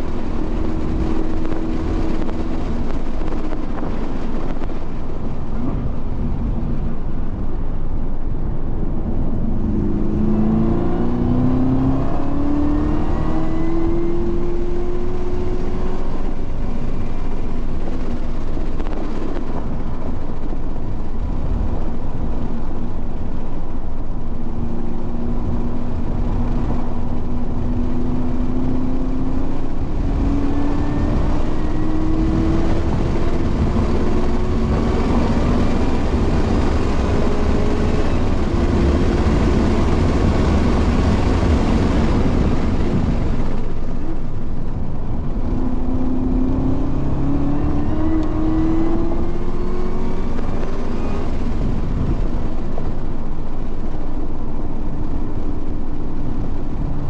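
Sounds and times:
heavy wind: 0.0s - 57.0s
road rumble: 0.0s - 57.0s
race car engine accelerating: 9.3s - 16.4s, 44.9s - 52.3s.

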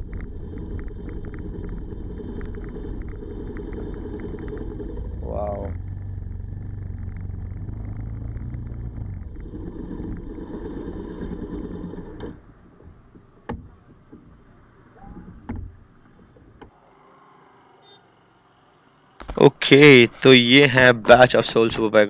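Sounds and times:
motorcycle engine running: 0.0s - 13.9s.

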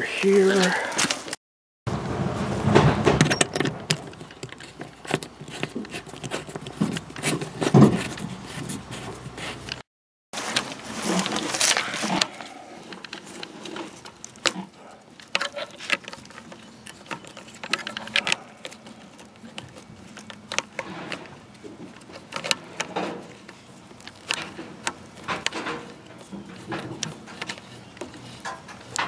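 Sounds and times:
hose rustling: 10.4s - 29.0s
metal hose fittings clicking: 15.2s - 29.0s.

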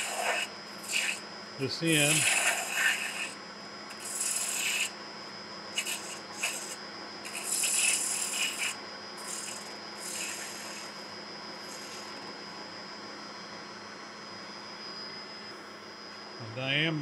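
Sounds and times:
gouge scraping spinning wood: 0.0s - 5.0s, 5.8s - 12.2s.

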